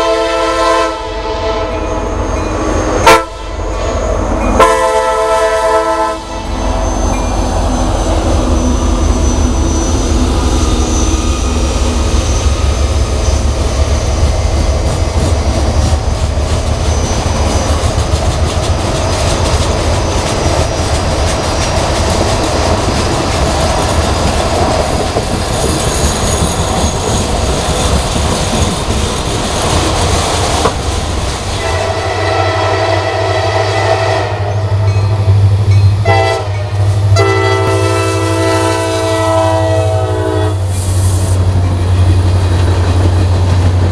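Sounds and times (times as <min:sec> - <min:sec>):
locomotive air horn: 0:00.0 - 0:02.2, 0:03.0 - 0:06.7, 0:31.6 - 0:34.8, 0:36.0 - 0:40.8
freight train cars clattering: 0:06.4 - 0:33.2, 0:40.6 - 0:43.9.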